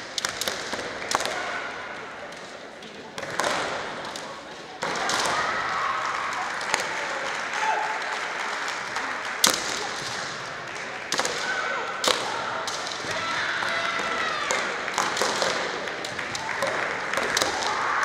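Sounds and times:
people shouting: 0:11.2 - 0:15.0, 0:16.5 - 0:18.0.

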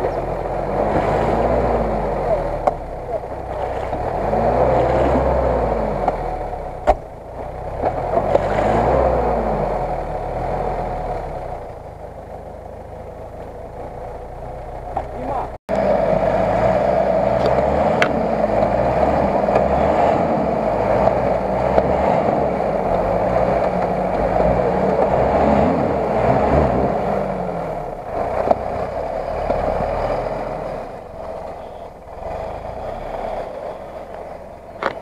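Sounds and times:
wheels churning mud: 0:00.0 - 0:06.9, 0:15.0 - 0:35.0
car engine revving and labouring: 0:00.0 - 0:35.0.

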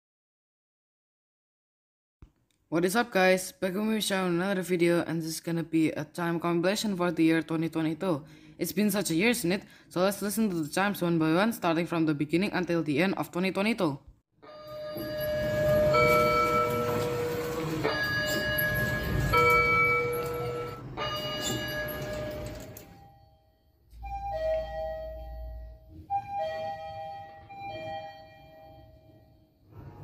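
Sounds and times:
two-note elevator chime: 0:14.5 - 0:29.4.

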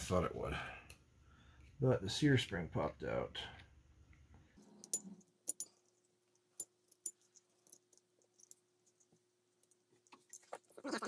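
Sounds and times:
faint steady hum: 0:00.0 - 0:10.8
small metal parts clicking: 0:04.6 - 0:10.7.

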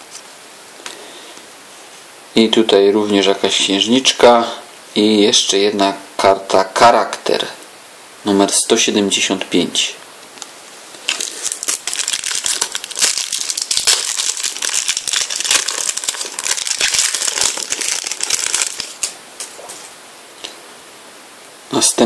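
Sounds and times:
foil packet crinkling: 0:11.0 - 0:19.6.

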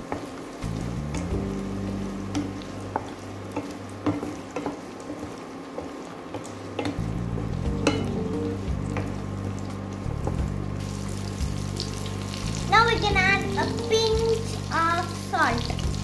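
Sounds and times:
low background music: 0:00.0 - 0:04.6, 0:06.6 - 0:16.0
onions sizzling in oil: 0:00.0 - 0:16.0.

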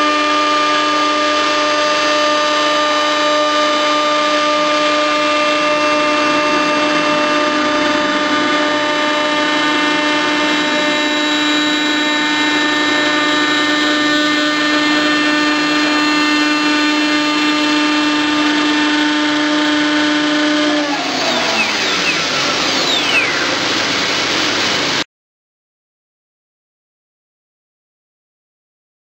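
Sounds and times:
power tool motor whining: 0:06.0 - 0:24.7.

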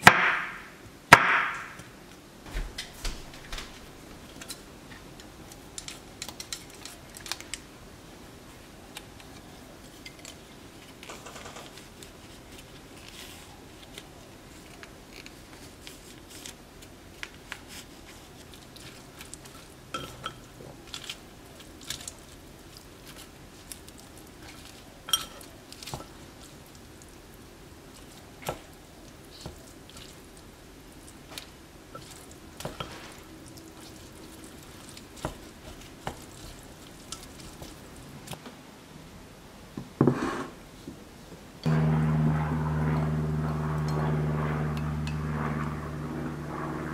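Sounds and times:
soft squishing of noodles: 0:03.9 - 0:11.0, 0:11.7 - 0:38.4.

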